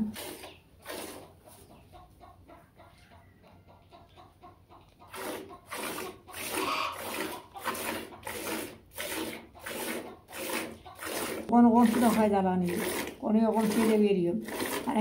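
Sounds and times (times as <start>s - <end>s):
milk squirting into metal pail: 0.0s - 1.5s, 5.1s - 15.0s
hen clucking: 0.4s - 15.0s.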